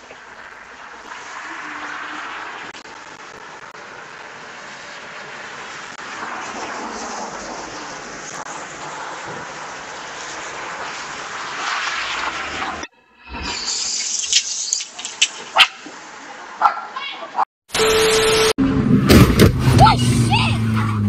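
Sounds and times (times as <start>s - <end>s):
tyres hissing on wet road: 0.0s - 12.9s.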